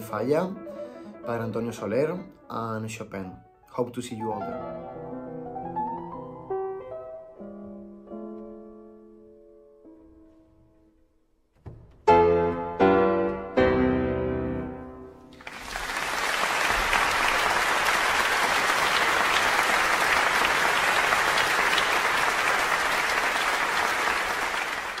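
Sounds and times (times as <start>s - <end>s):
piano and orchestra chords: 0.0s - 10.3s, 12.0s - 25.0s
audience applause: 15.4s - 25.0s.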